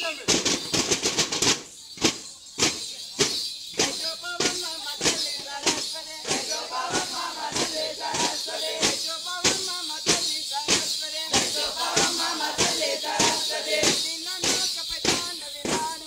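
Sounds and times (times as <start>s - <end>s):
chest drums beaten in steady beat: 0.0s - 16.0s
group of voices chanting: 5.0s - 9.0s, 11.3s - 14.6s.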